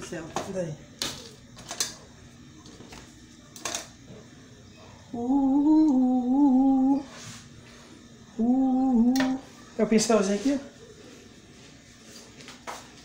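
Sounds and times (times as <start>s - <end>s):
person humming: 5.1s - 7.2s, 8.3s - 9.5s.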